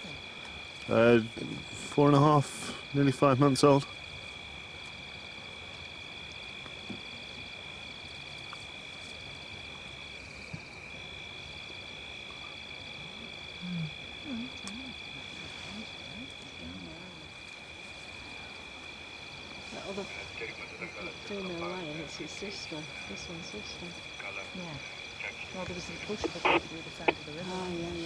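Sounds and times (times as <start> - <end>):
insect rhythmic chirp: 0.0 - 28.0
insects trilling: 0.0 - 28.0
faint low sliding murmurs: 19.6 - 28.0.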